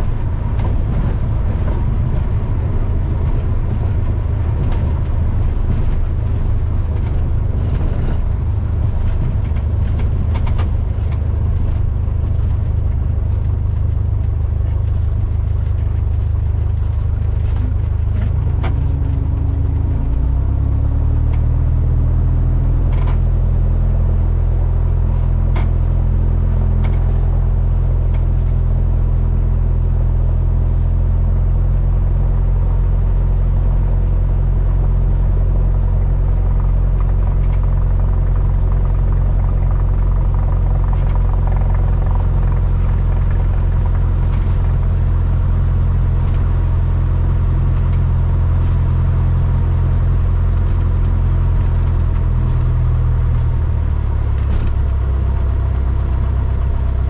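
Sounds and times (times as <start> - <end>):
airplane engine and propeller drone: 0.0 - 57.0.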